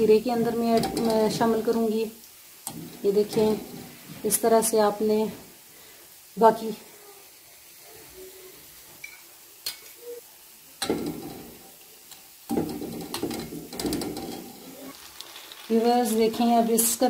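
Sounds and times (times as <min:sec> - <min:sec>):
wet sizzling squelch: 0:14.4 - 0:17.0.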